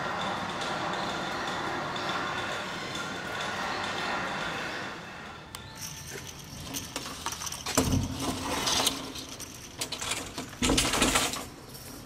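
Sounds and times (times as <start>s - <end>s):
metal chain curtain rattling: 5.8s - 12.0s.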